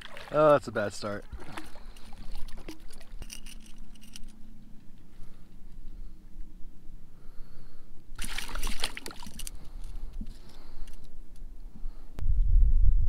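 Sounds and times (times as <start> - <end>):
water splashing and trickling: 0.0 - 4.4, 8.2 - 11.1
low steady rumble: 0.6 - 13.0.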